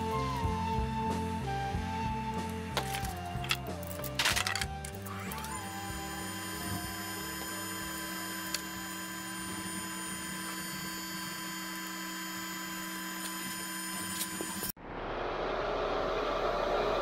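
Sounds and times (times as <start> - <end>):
electrical mains hum: 0.0 - 17.0
high whining tones: 0.0 - 17.0.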